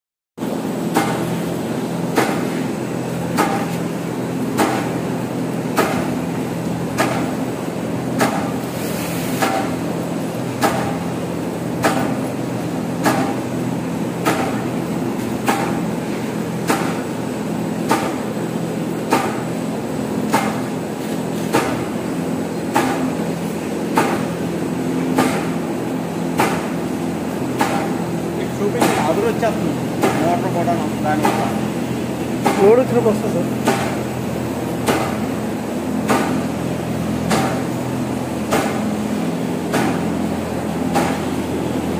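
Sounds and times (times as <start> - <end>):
sharp machine knock: 0.9 - 1.3, 2.1 - 2.6, 3.3 - 3.8, 4.5 - 5.0, 8.1 - 8.6, 9.4 - 9.8, 10.6 - 11.0, 11.8 - 12.3, 13.0 - 13.4, 14.2 - 14.6, 15.4 - 15.9, 16.6 - 17.1, 17.8 - 18.3, 19.0 - 19.6, 20.3 - 20.8, 23.9 - 24.3, 25.1 - 25.6, 26.3 - 26.8, 27.6 - 28.0, 28.7 - 29.4, 30.0 - 31.6, 32.4 - 33.0, 33.6 - 34.1, 36.0 - 36.5, 37.3 - 37.8, 38.5 - 38.9, 39.7 - 40.1, 40.9 - 41.4.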